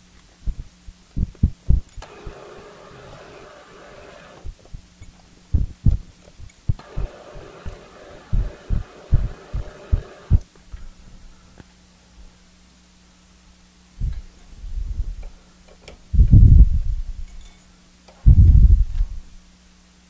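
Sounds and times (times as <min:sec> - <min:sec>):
faint motor hum: 0:00.0 - 0:20.0
dull low thumps: 0:00.4 - 0:02.0, 0:05.5 - 0:06.8, 0:08.3 - 0:10.4, 0:14.0 - 0:15.2, 0:16.1 - 0:17.2, 0:18.2 - 0:19.2
milling machine drilling rasp: 0:02.0 - 0:04.5, 0:06.8 - 0:10.4.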